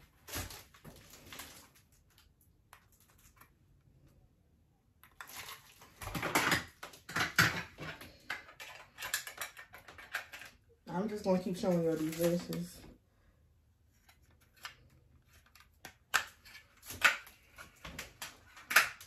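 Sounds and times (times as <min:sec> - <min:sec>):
plastic cases clicking and rustling: 0:05.9 - 0:10.6, 0:14.0 - 0:19.0.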